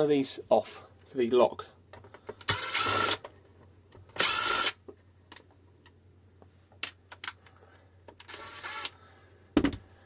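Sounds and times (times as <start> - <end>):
electric screwdriver running: 2.5 - 3.2, 4.2 - 4.8, 8.3 - 9.0.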